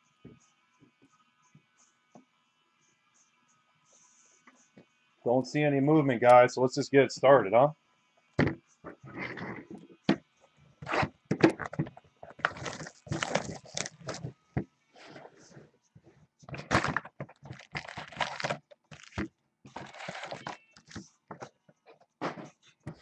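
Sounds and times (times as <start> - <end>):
card packs knocking on table: 8.4 - 8.6
cardboard tearing: 10.8 - 14.3, 16.5 - 21.0
packaging crinkling: 11.6 - 14.3, 16.5 - 21.0.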